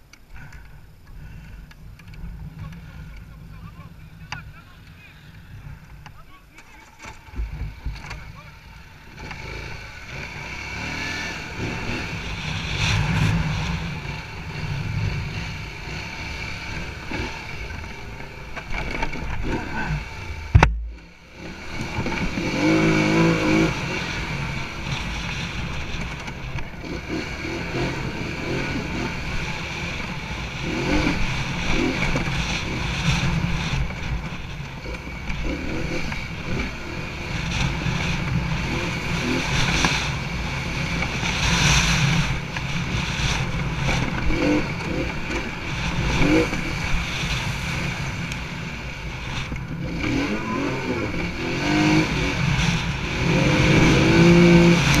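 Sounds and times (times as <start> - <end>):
atv engine running: 0.0 - 55.0
sharp knock: 20.5 - 21.0.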